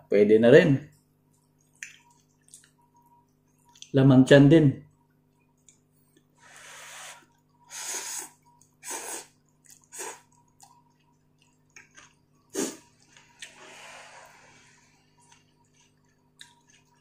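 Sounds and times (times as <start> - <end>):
quiet chewing: 0.9 - 3.9, 4.9 - 6.4, 7.2 - 13.6, 15.0 - 17.0
person slurping noodles: 6.4 - 9.3, 12.5 - 15.0.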